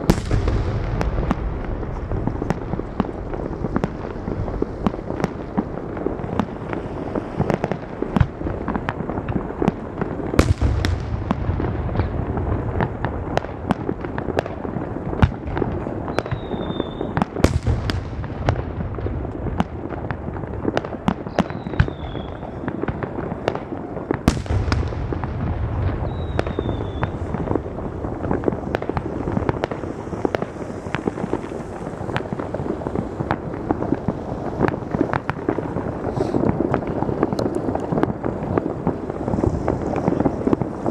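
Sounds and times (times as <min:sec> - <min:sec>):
fireworks crackling: 0:00.0 - 0:40.9
low firework booms: 0:00.0 - 0:40.9
high firework whistles: 0:16.0 - 0:18.6, 0:20.8 - 0:23.0, 0:24.3 - 0:33.3, 0:34.0 - 0:38.1.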